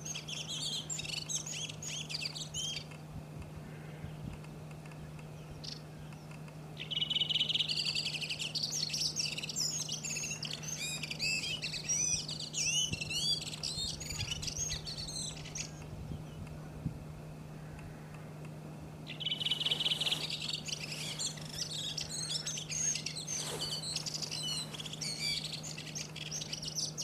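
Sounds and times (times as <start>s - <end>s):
bird singing chirps and whistles: 0.0s - 2.9s, 6.8s - 16.3s, 19.1s - 27.0s.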